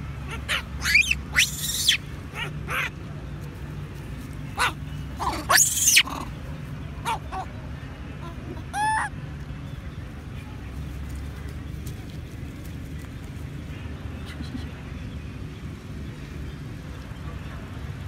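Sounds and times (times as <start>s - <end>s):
baby monkey screaming: 0.3s - 2.9s, 4.6s - 6.3s, 8.6s - 9.1s.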